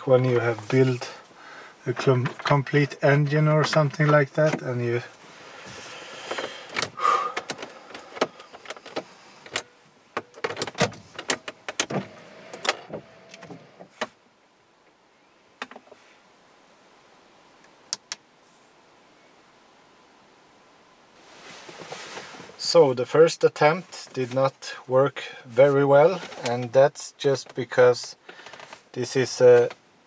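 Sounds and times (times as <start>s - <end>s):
rustling handling noise: 0.0s - 11.8s, 21.2s - 22.8s, 23.8s - 29.8s.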